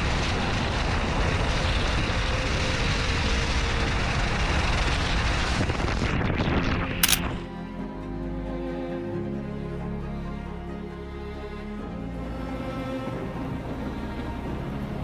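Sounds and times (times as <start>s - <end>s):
wind on microphone: 0.0s - 7.4s.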